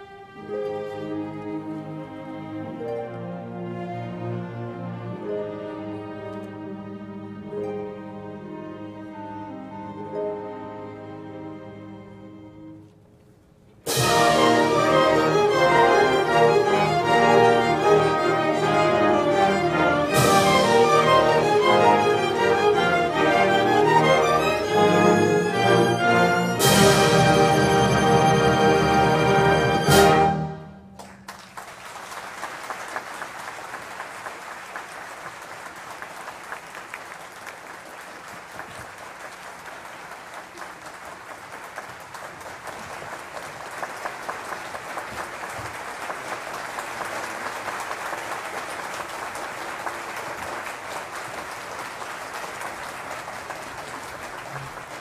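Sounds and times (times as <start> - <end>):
orchestral chord: 0.3 - 12.8, 13.9 - 30.9
audience applauding: 30.9 - 55.0.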